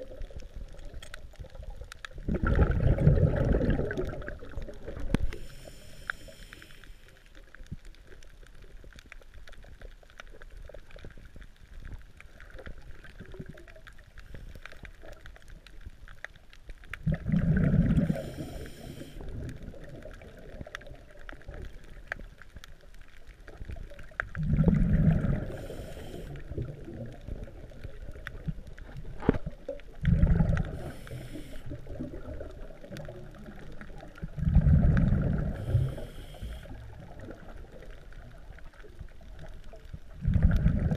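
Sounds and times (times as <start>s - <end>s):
faint crackling: 0.0s - 40.9s
underwater exhaled bubbles: 0.0s - 40.9s
regulator hiss: 5.2s - 7.2s, 18.1s - 19.2s, 25.5s - 26.4s, 30.8s - 31.8s, 35.6s - 36.8s.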